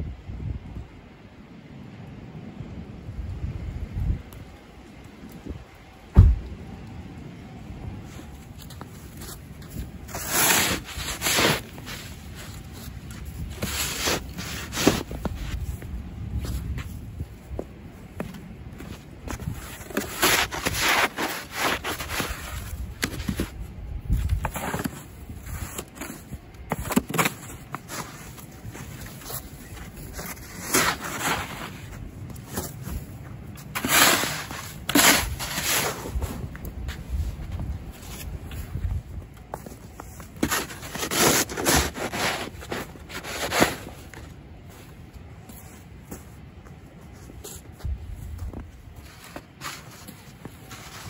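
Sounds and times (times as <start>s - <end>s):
snow scraping and swishing: 8.0s - 17.6s, 18.3s - 45.0s, 47.1s - 51.0s.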